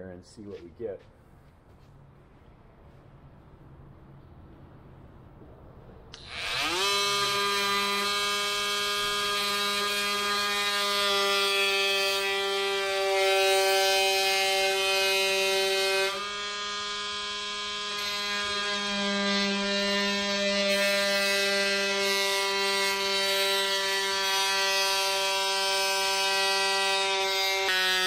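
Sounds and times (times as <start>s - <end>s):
oscillating multi-tool cutting wood: 6.1s - 28.0s.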